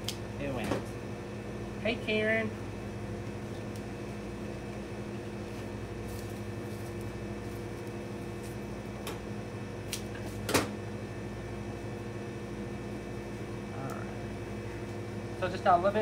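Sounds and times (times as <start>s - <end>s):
machine hum: 0.0s - 16.0s
sharp crackle of grass: 5.5s - 7.8s.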